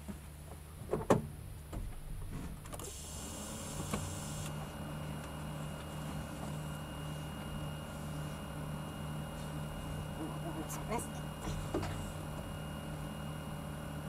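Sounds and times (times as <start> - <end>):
electric motor hum: 2.7 - 14.0.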